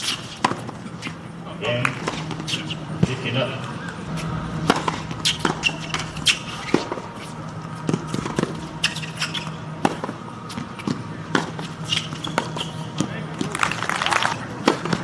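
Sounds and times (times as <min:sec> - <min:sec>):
steady low hum: 0:00.0 - 0:15.0
tennis ball bounces: 0:00.1 - 0:01.2, 0:04.6 - 0:13.7.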